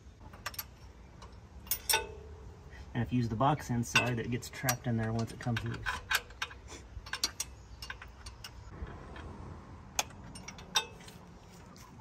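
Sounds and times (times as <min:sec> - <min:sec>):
hand wrench clicking on bolt: 0:03.9 - 0:09.3.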